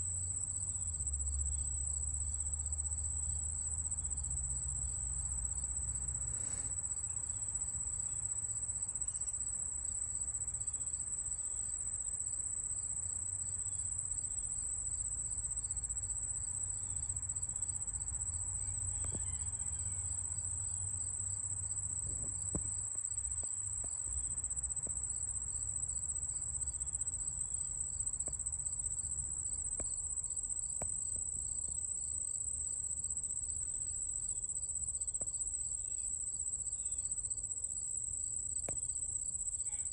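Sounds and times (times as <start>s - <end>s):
insect high-pitched trill: 18.2s - 39.9s.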